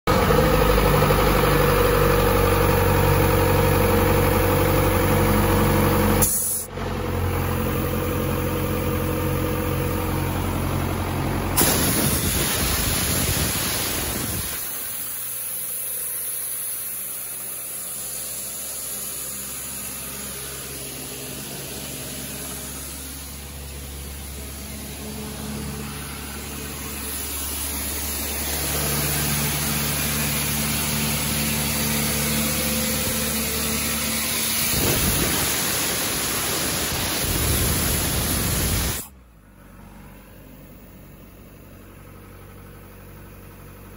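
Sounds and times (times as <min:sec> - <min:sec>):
diesel engine running with drone: 0:00.1 - 0:43.9
burst of rushing air: 0:11.6 - 0:15.8, 0:17.9 - 0:39.1.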